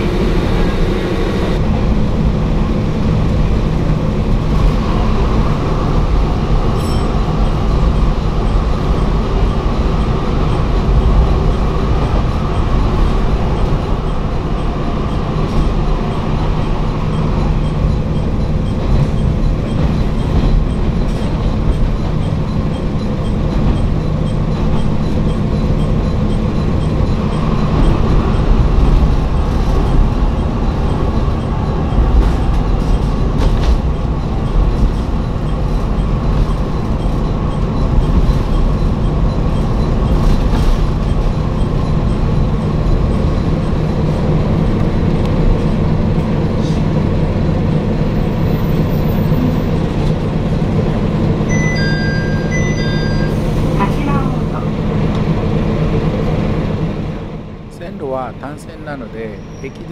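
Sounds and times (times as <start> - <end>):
diesel engine drone: 0.0 - 59.9
train wheels rumbling on track: 0.0 - 59.9.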